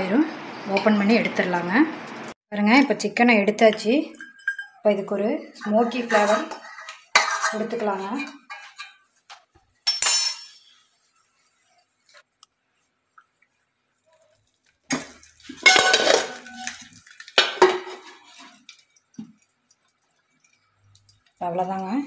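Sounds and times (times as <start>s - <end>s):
oil sizzling on hot charcoal: 0.0s - 2.4s, 5.9s - 22.0s
steel vessels clinking: 4.1s - 4.8s, 9.8s - 10.8s, 14.9s - 19.0s
metal lid clanking down: 15.6s - 16.7s.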